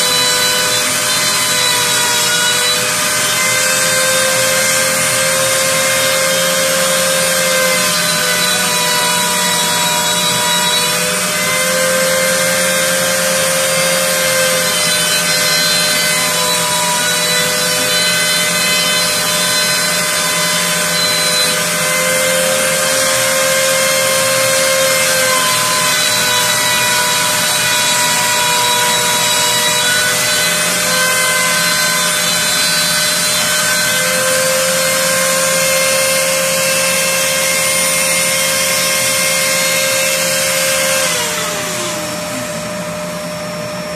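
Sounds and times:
rotary tool high whine: 0:00.0 - 0:43.9.

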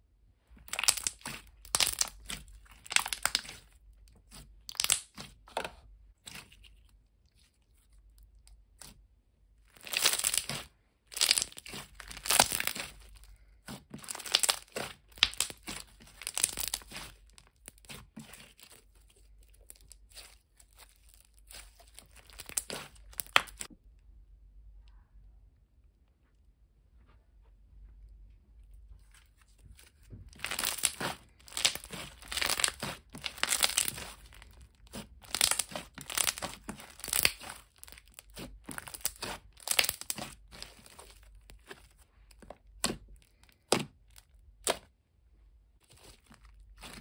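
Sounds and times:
slime crackling and popping: 0:00.6 - 0:05.4, 0:09.6 - 0:23.7, 0:30.3 - 0:44.9, 0:45.8 - 0:47.0.

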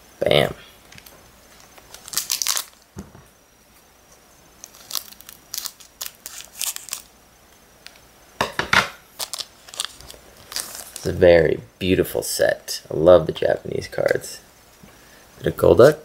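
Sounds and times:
foil wrapper crinkling and tearing: 0:01.5 - 0:02.9, 0:04.6 - 0:07.2, 0:09.1 - 0:11.2.

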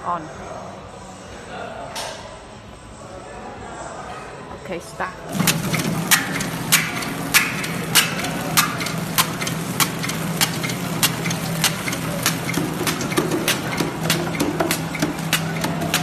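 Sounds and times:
machine clicking and ticking: 0:05.3 - 0:16.0
packing machine motor hum: 0:05.3 - 0:16.0.

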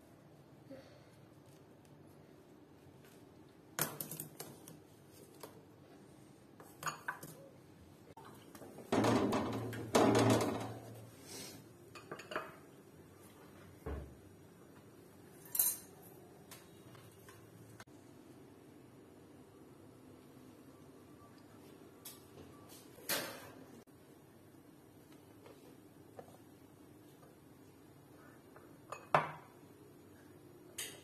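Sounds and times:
kitchenware clatter: 0:06.6 - 0:07.5, 0:08.2 - 0:11.0, 0:11.9 - 0:12.7, 0:15.3 - 0:16.1.

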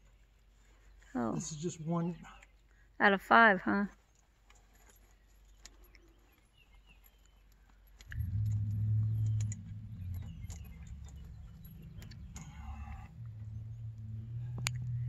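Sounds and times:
faint clicks: 0:07.2 - 0:15.0
faint chirps: 0:08.1 - 0:15.0
low steady motor hum: 0:08.1 - 0:15.0.

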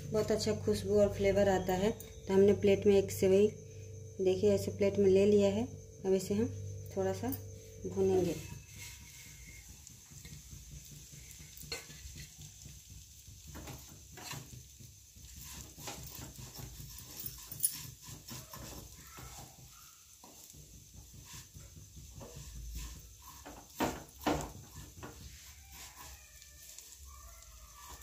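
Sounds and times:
low steady hum: 0:00.0 - 0:10.5
spatula scraping frying pan: 0:08.2 - 0:28.0.

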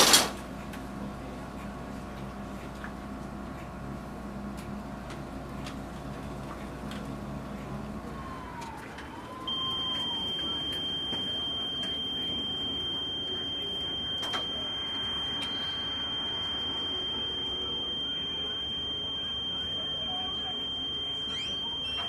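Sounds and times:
high-pitched electronic tone: 0:08.2 - 0:22.0.

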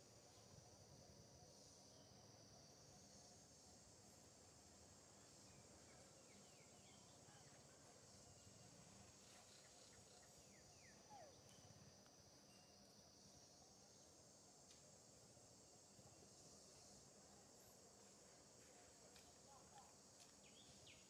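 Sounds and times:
high insect drone: 0:00.0 - 0:21.0.

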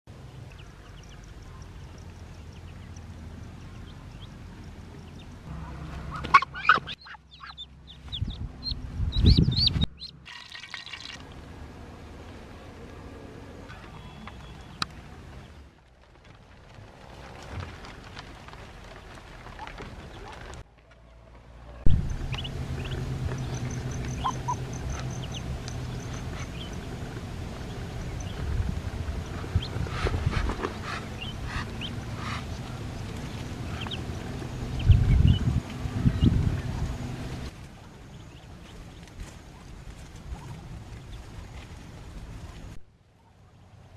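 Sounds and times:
low rustling rumble: 0:00.1 - 0:10.2, 0:11.2 - 0:42.9
ducklings peeping: 0:00.5 - 0:10.2, 0:21.9 - 0:37.5, 0:38.1 - 0:41.7
steady low hum: 0:21.6 - 0:43.3.

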